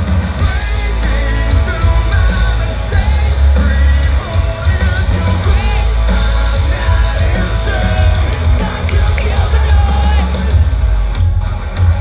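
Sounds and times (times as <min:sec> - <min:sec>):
drums: 0:00.0 - 0:12.0
electric guitars: 0:00.0 - 0:12.0
heavy bass: 0:00.0 - 0:12.0
man singing: 0:00.3 - 0:10.7.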